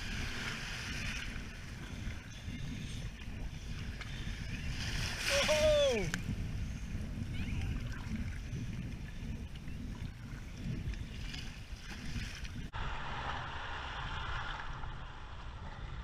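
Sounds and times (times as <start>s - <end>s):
wind rumbling on microphone: 0.0s - 16.0s
small waves breaking hiss: 4.9s - 6.2s, 11.2s - 16.0s.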